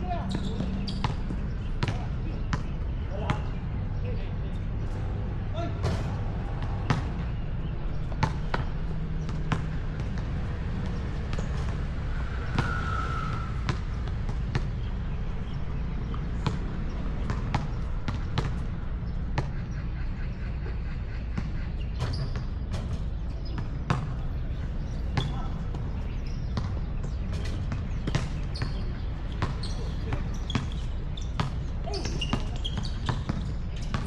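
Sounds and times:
basketball bouncing on hard court: 0.3s - 3.4s, 5.8s - 11.9s, 13.7s - 14.8s, 16.1s - 19.6s, 21.3s - 24.2s, 25.2s - 34.0s.

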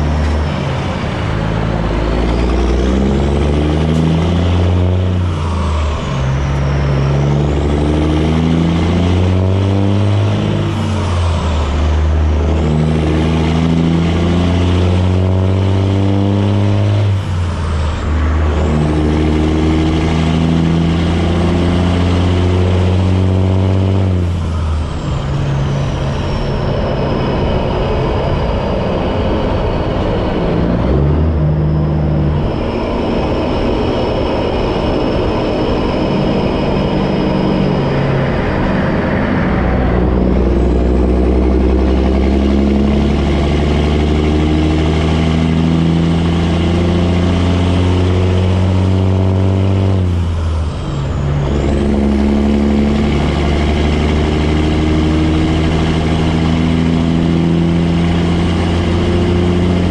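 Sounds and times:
diesel truck engine pulling: 0.0s - 59.9s
high turbo whistle: 16.5s - 59.9s.

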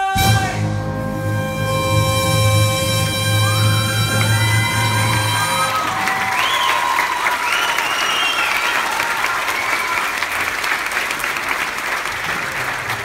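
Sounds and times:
people cheering: 3.4s - 13.0s
audience applauding: 3.6s - 13.0s.

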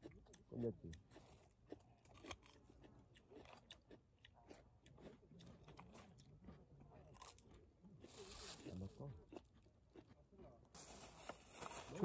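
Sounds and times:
chewing crisp cucumber: 0.0s - 10.8s.

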